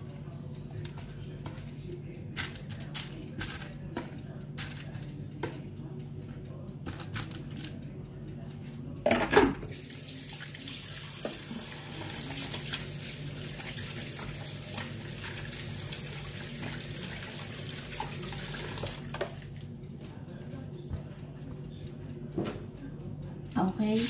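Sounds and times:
steady low hum: 0.0s - 9.7s, 19.3s - 24.0s.

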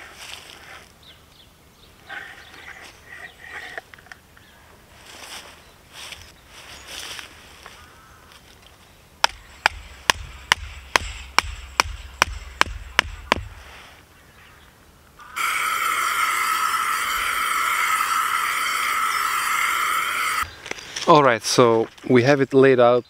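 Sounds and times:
sharp knocks: 9.2s - 13.7s
loud whirring with pitched tones: 15.2s - 20.4s.

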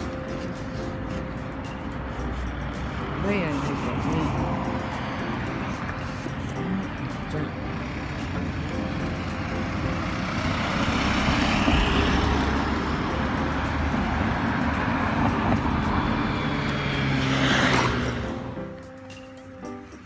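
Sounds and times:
cars passing: 0.0s - 20.0s.

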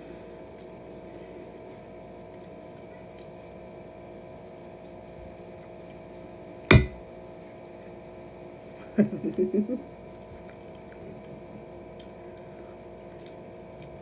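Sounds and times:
steady hum: 0.0s - 10.2s
plastic fork striking plate: 6.7s - 7.0s.

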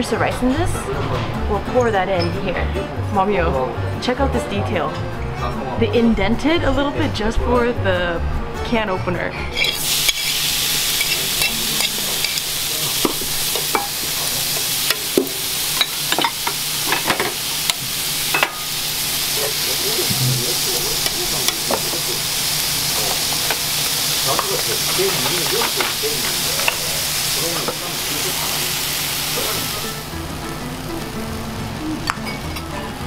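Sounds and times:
utensils clinking: 9.5s - 18.8s, 22.9s - 28.4s
grill sizzling: 9.6s - 33.0s.

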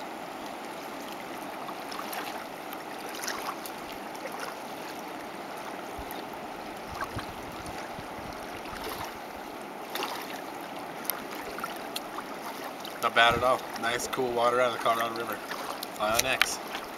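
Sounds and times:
river water rushing: 0.0s - 16.9s
low bumps: 13.0s - 14.4s.

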